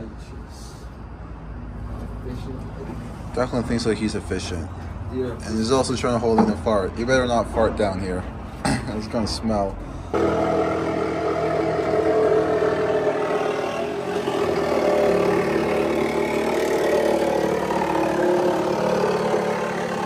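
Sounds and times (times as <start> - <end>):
motor droning: 10.1 - 20.0.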